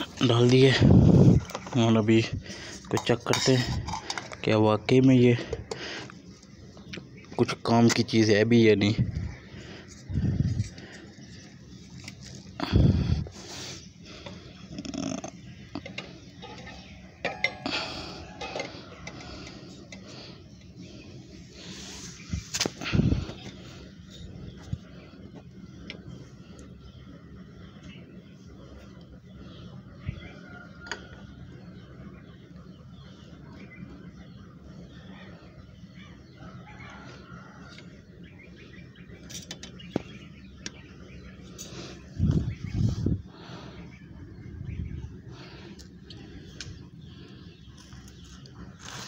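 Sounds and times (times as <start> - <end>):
steady low hum: 0.0 - 49.0
metal stove parts clinking: 2.8 - 4.5, 15.8 - 17.7, 18.3 - 19.3.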